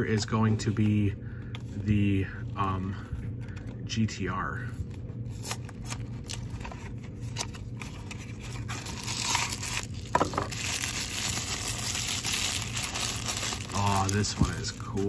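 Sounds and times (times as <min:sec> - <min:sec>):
cardboard flap tearing: 0:05.4 - 0:14.8
plastic wrapper crinkling: 0:05.4 - 0:15.0.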